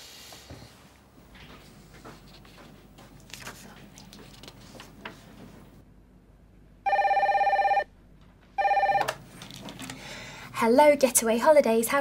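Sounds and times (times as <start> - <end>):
telephone ringing with warbling tone: 6.9 - 7.9, 8.6 - 9.1.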